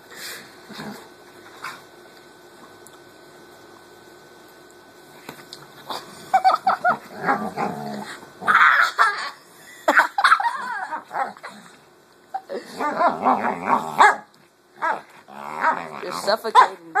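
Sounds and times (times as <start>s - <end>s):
dog growling and barking: 0.7s - 1.8s, 5.9s - 11.8s, 12.4s - 17.0s.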